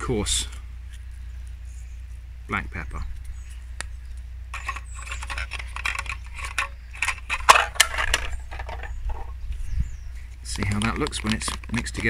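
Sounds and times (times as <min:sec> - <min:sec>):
tins rattling and clicking: 0:04.6 - 0:09.3.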